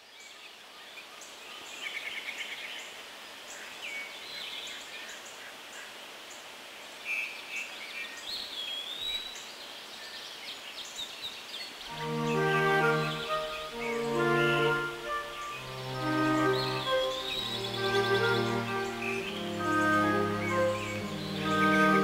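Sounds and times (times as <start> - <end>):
background hiss: 0.0 - 22.0
birds chirping and trilling: 10.8 - 22.0
whistled bird note: 12.0 - 22.0.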